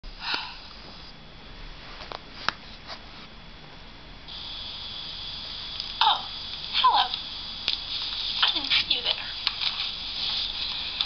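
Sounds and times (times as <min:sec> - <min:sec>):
steady high hiss: 0:00.1 - 0:11.0
thin whine: 0:04.3 - 0:11.0.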